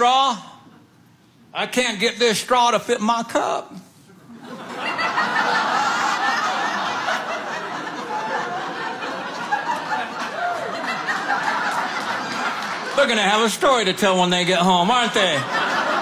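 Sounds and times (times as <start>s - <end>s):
audience laughing: 4.2s - 13.6s, 14.9s - 16.0s.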